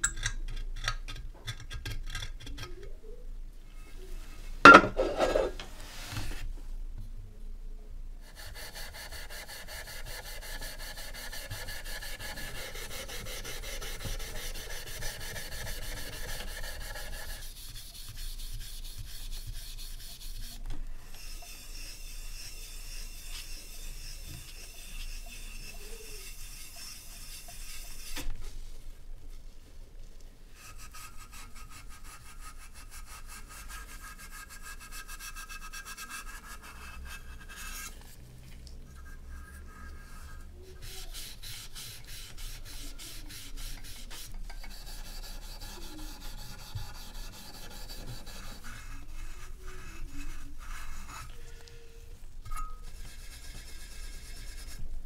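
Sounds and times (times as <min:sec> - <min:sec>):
steel wool scrubbing metal: 0:04.6 - 0:06.2, 0:08.3 - 0:28.5, 0:38.9 - 0:51.8, 0:52.4 - 0:54.9.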